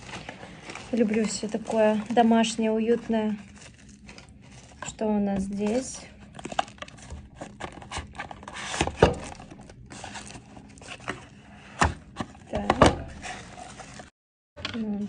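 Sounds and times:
cardboard sliding and rustling: 6.4 - 14.1.

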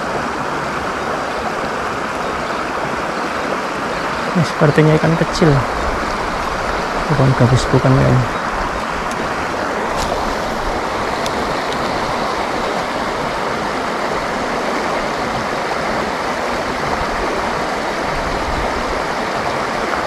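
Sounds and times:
river water rushing over stones: 0.0 - 20.0.

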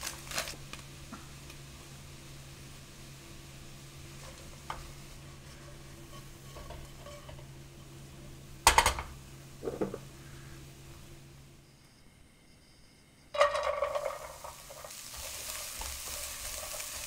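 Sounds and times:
food sizzling in oil: 0.0 - 11.3, 13.3 - 17.0
spatula stirring in pan: 3.8 - 8.0, 13.4 - 17.0
spatula clattering against pan: 13.4 - 15.0.

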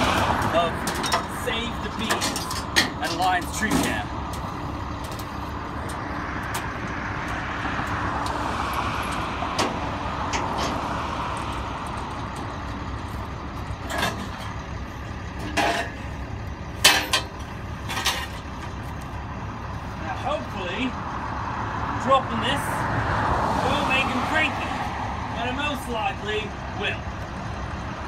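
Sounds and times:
road vehicle noise: 0.0 - 28.0
knocks and clatters of handling: 0.4 - 7.0, 15.4 - 16.1, 16.8 - 19.1.

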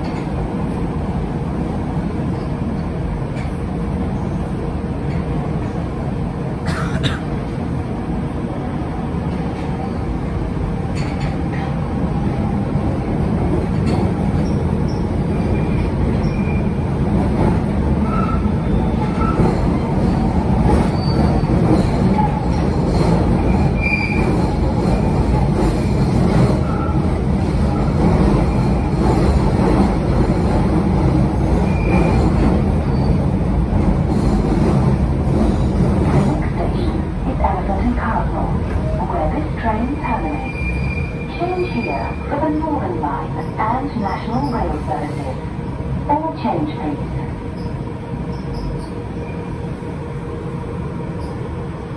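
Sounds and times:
train wheels rumbling on rails: 0.0 - 51.9
high wheel squeals: 18.0 - 19.4, 23.6 - 24.3, 40.4 - 42.2.

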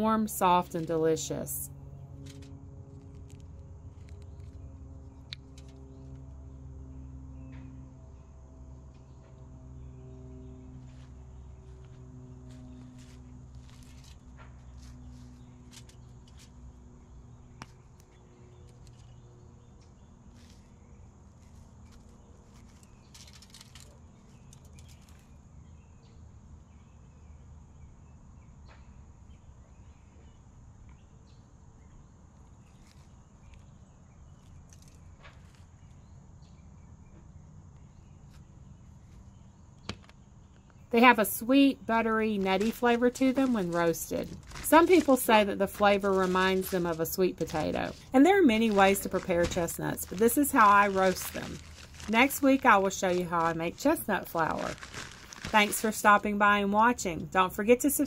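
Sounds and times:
low hum: 0.0 - 25.1, 40.4 - 58.0
insect chirps and clicks: 11.8 - 25.8.

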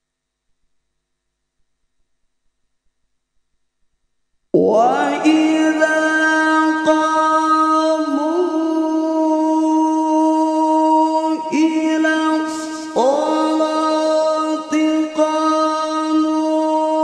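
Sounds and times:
man reciting melodically: 4.6 - 17.0.

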